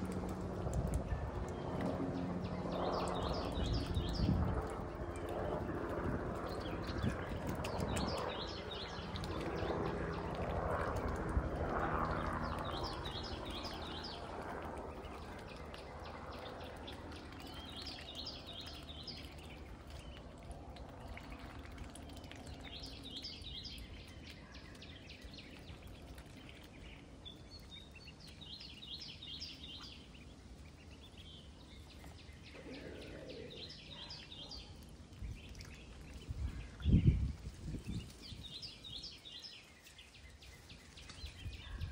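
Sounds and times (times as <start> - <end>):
songbird chirping: 11.8 - 41.9.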